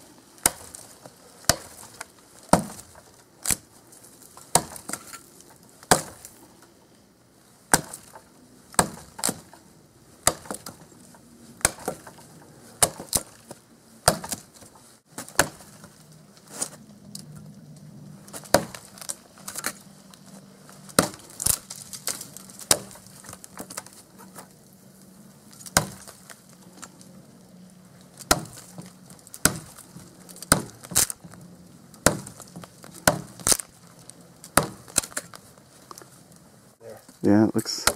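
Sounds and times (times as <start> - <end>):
hatchet chopping dry wood: 0.4 - 3.6, 4.4 - 5.2, 5.8 - 6.4, 7.7 - 9.6, 10.2 - 10.8, 11.6 - 12.2, 12.8 - 15.9, 18.3 - 19.7, 20.9 - 24.0, 25.6 - 26.4, 28.1 - 31.2, 32.0 - 33.8, 34.4 - 35.4.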